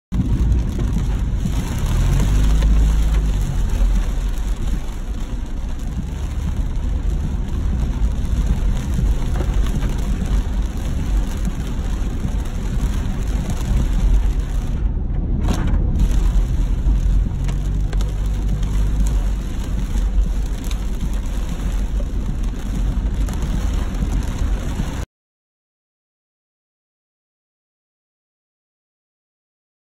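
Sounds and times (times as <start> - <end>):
deep low rumble: 0.1 - 25.1
heavy rain drumming on car roof: 0.1 - 25.1.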